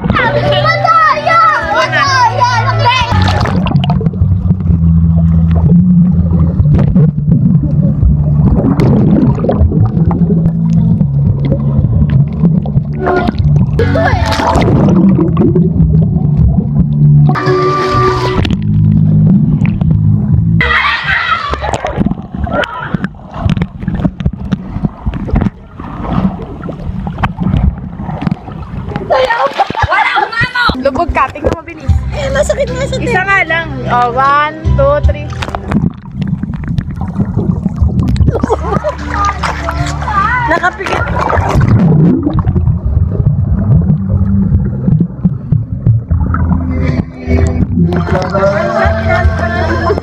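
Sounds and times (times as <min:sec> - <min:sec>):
muffled underwater rumble: 0:00.0 - 0:50.0
gurgling bubbles: 0:03.1 - 0:20.3, 0:21.4 - 0:29.8, 0:35.3 - 0:48.4.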